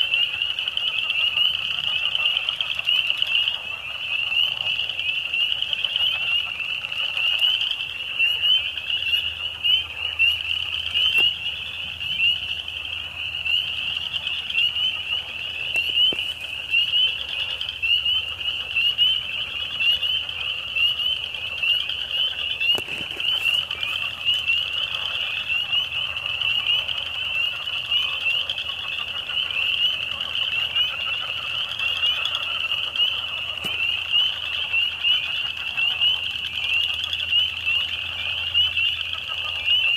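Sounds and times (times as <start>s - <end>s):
frogs peeping: 0.0s - 39.9s.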